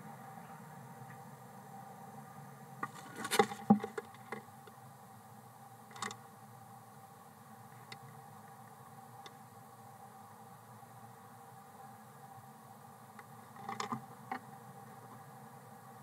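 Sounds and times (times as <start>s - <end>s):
talons scraping on wooden box: 2.8s - 4.0s.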